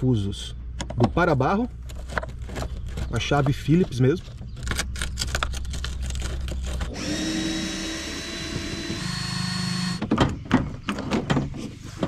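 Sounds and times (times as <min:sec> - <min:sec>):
small motor whining: 0:06.6 - 0:10.0.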